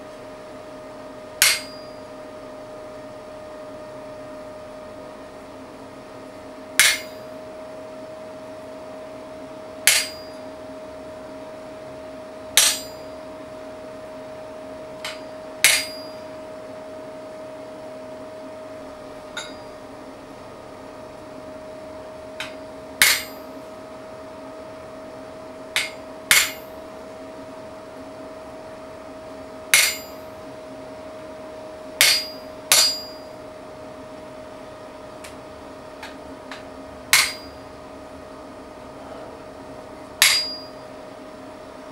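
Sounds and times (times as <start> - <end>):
steady hum: 0.0 - 41.9
hammer striking chisel on steel: 1.4 - 2.1, 6.8 - 7.2, 9.9 - 10.4, 12.6 - 13.0, 15.0 - 16.2, 19.4 - 19.8, 22.4 - 23.5, 25.8 - 26.7, 29.7 - 30.3, 32.0 - 33.3, 36.0 - 37.6, 40.2 - 40.8.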